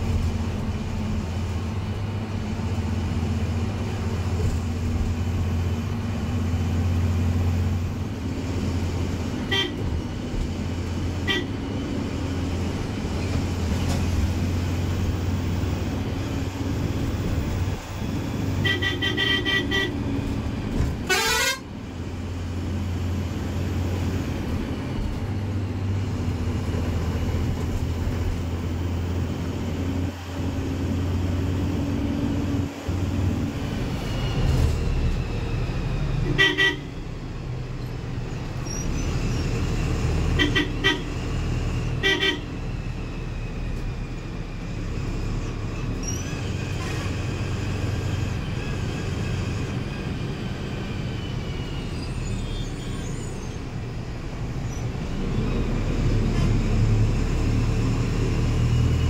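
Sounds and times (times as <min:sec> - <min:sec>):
diesel engine and road noise: 0:00.0 - 0:59.0
vehicle horn blasts: 0:09.5 - 0:09.9, 0:11.2 - 0:11.5, 0:18.6 - 0:20.0, 0:21.0 - 0:21.7, 0:36.2 - 0:36.9, 0:40.4 - 0:41.1, 0:42.0 - 0:42.5.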